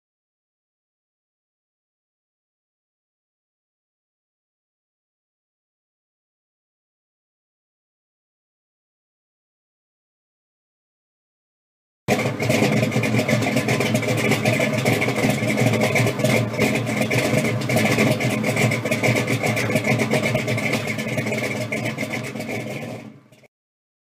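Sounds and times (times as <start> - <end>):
car engine with rough exhaust: 12.1 - 23.5.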